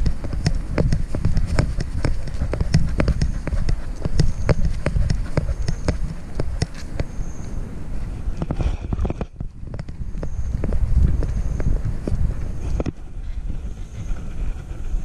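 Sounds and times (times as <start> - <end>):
dog footfalls clicking on concrete: 0.0 - 7.1
low rumble of handling noise: 0.0 - 15.0.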